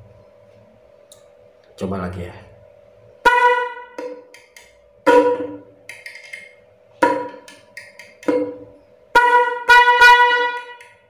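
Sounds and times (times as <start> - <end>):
horn honking: 3.2 - 4.3, 5.0 - 5.8, 7.0 - 7.5, 8.2 - 11.0.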